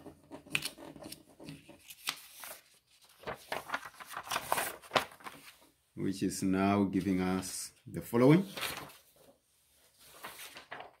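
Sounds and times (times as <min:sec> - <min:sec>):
paper rustling and crinkling: 0:00.3 - 0:05.7, 0:08.3 - 0:11.0.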